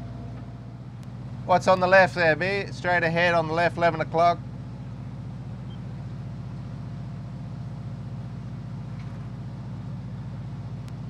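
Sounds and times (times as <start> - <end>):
boat engine humming: 0.0 - 11.0.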